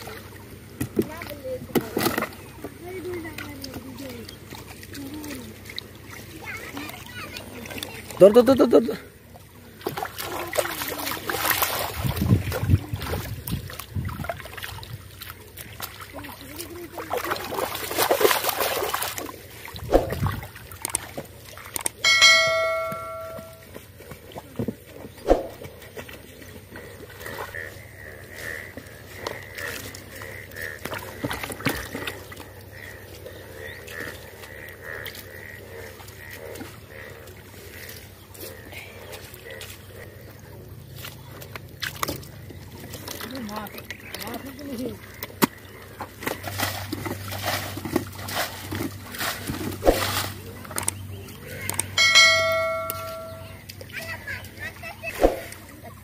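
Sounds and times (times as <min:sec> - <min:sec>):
feet wading through water: 0:00.0 - 0:56.0
hands splashing water: 0:09.7 - 0:27.5, 0:41.0 - 0:55.9
frog calling: 0:21.9 - 0:23.7, 0:26.5 - 0:40.9, 0:42.4 - 0:47.0, 0:50.8 - 0:53.7.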